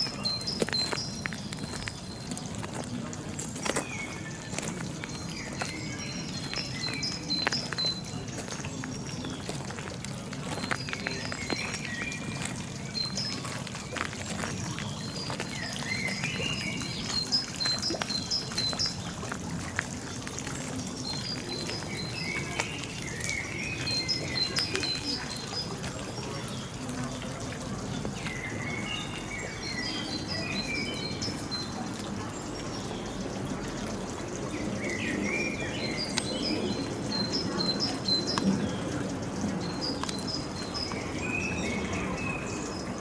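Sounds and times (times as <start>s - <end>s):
small birds singing: 0.0s - 43.0s
trickling water: 0.0s - 43.0s.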